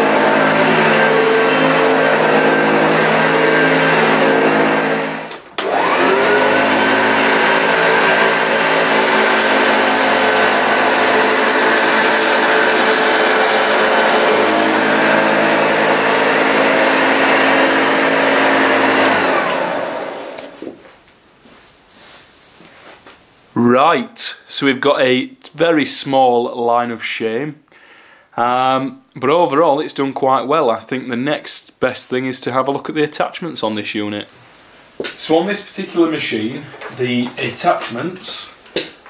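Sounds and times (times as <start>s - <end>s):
vacuum cleaner motor whine: 0.0s - 20.7s.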